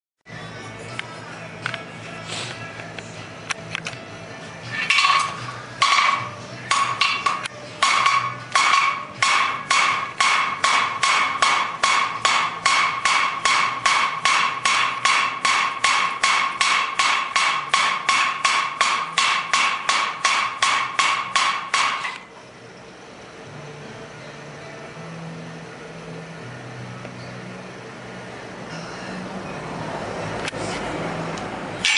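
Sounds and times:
hammer ringing on steel anvil: 0:04.9 - 0:22.2.

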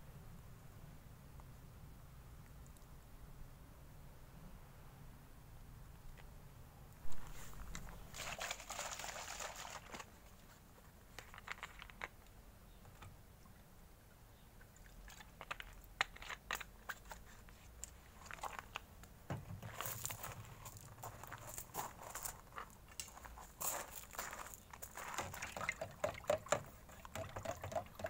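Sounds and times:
plastic bottle crinkling: 0:07.1 - 0:10.5, 0:11.1 - 0:12.2.

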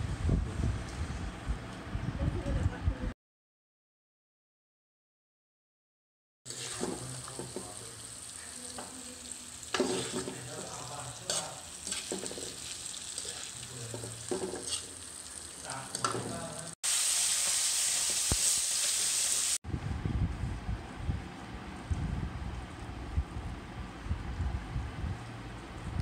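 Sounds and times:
meat frying in bubbling oil: 0:06.5 - 0:19.6
knocks in the pan: 0:13.9 - 0:14.8.

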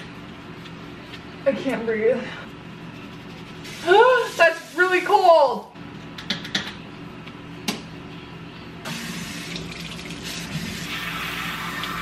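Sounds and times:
water spraying into sink: 0:03.7 - 0:05.2, 0:08.9 - 0:12.0.

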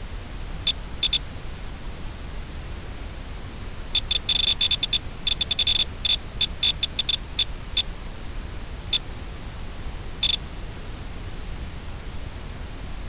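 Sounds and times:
static hiss from video link: 0:00.0 - 0:13.0
short high electronic beeps: 0:04.0 - 0:07.5.

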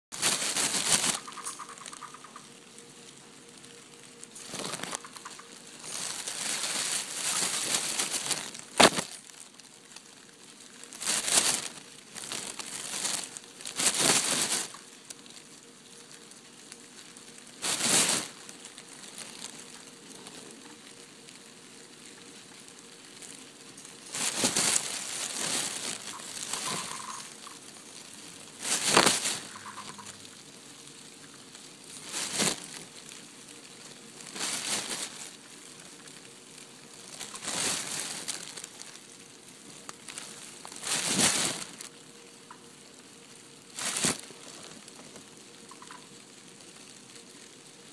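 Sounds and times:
plastic bag crinkling: 0:00.1 - 0:42.7, 0:43.6 - 0:47.6
cicadas buzzing: 0:00.2 - 0:41.0, 0:45.5 - 0:46.4.

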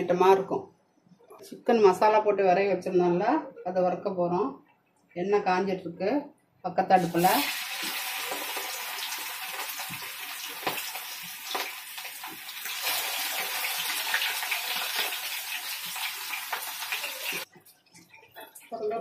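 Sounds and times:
deep-frying sizzle with pops: 0:07.0 - 0:19.0.

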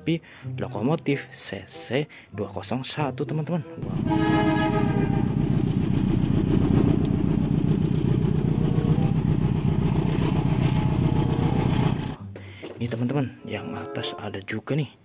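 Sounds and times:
diesel locomotive rumbling past: 0:03.8 - 0:12.2.

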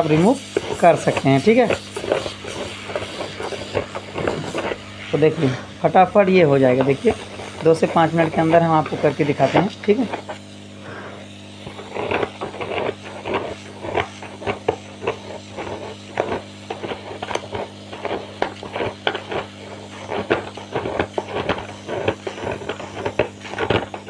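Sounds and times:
knife scraping glue: 0:00.0 - 0:04.9, 0:11.6 - 0:24.0
heat gun humming: 0:00.0 - 0:24.0.

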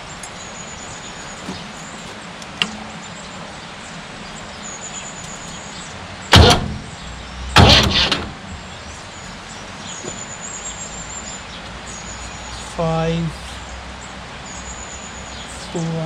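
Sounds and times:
loud clunks: 0:06.3 - 0:09.0.

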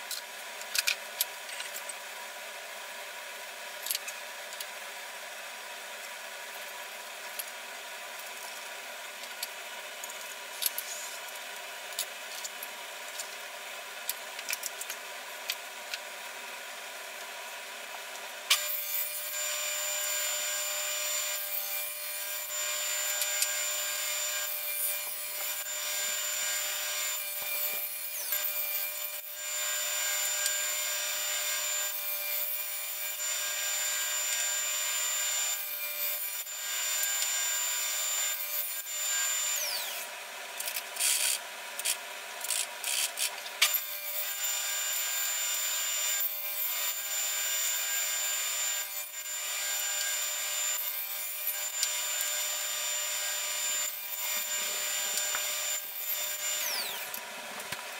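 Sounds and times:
table saw cutting wood: 0:16.8 - 0:57.9.

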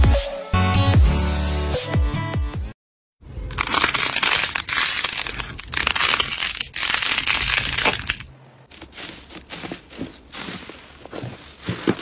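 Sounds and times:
slime crackling: 0:03.5 - 0:09.0.

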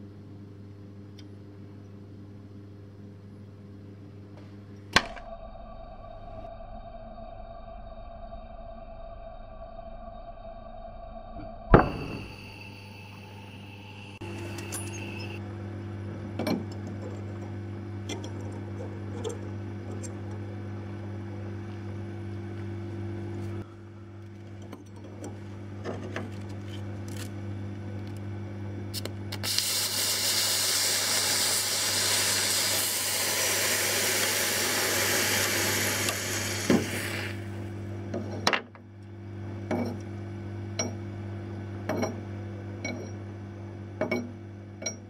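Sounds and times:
electrical hum: 0:00.0 - 0:45.0
aerosol spray hissing: 0:29.4 - 0:37.4.

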